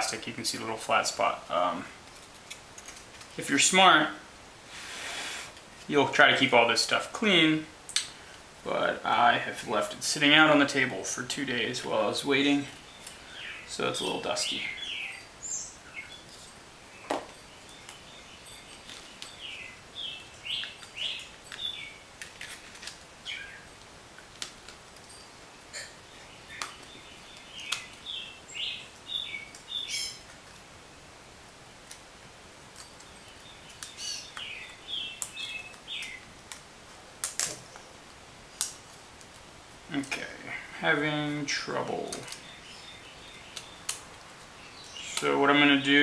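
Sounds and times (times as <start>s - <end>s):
bird chirping: 10.6s - 22.1s, 23.2s - 23.8s, 25.1s - 31.0s, 32.8s - 36.3s, 39.9s - 46.0s
plastic sheets clicking: 37.2s - 37.6s.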